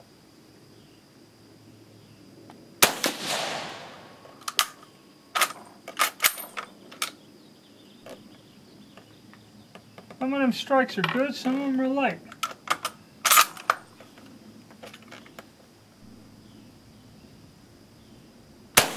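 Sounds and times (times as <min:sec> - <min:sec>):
rifle shot with echo: 0:02.8 - 0:04.7.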